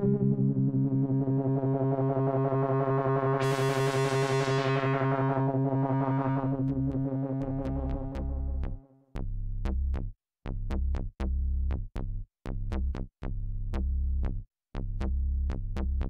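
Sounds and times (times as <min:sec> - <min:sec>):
synthesizer pulsing low chord: 0:00.0 - 0:08.8
choppy low synth pulsing with clicks: 0:00.0 - 0:16.0.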